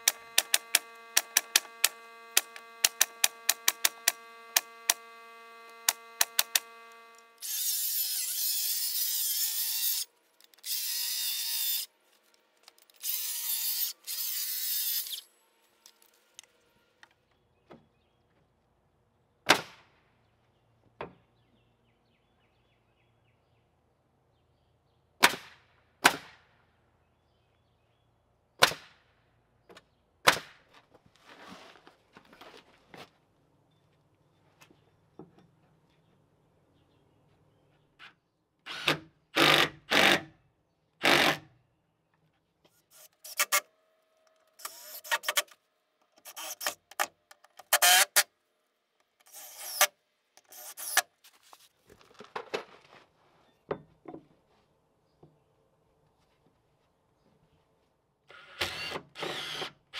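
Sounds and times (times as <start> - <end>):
power tool running: 0.0 - 11.9, 12.9 - 17.1, 42.8 - 45.6, 46.2 - 48.3, 49.2 - 51.1, 58.3 - 59.9.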